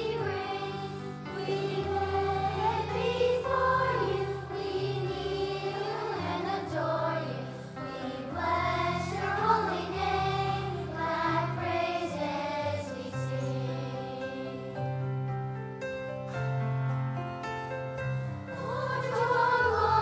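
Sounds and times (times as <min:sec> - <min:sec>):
children's choir singing: 0:00.0 - 0:15.0, 0:18.5 - 0:20.0.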